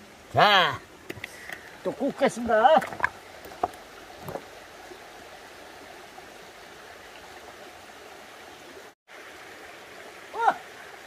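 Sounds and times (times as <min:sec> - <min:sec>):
stream running over rocks: 0:00.0 - 0:11.0.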